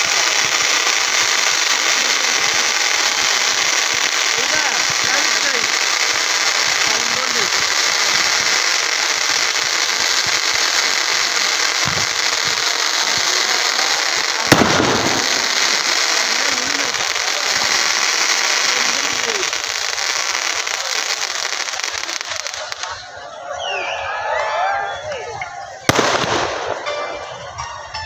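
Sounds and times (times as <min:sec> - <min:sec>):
fireworks crackling hiss: 0:00.0 - 0:23.5, 0:24.7 - 0:27.6
loud firework bang: 0:11.8 - 0:12.5, 0:14.4 - 0:15.9, 0:25.9 - 0:26.9.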